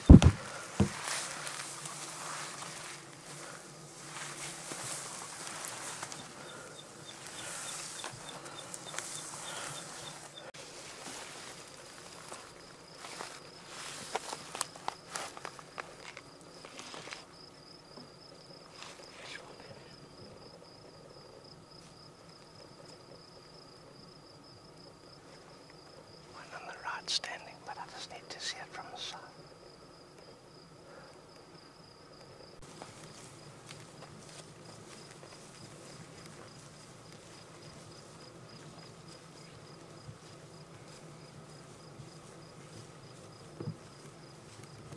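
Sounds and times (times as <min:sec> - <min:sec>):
short low thump: 0:00.0 - 0:01.0
insect chirping: 0:00.0 - 0:10.5, 0:11.1 - 0:44.9
soft rustles: 0:00.0 - 0:17.3, 0:32.6 - 0:44.9
insect trilling: 0:05.5 - 0:10.5.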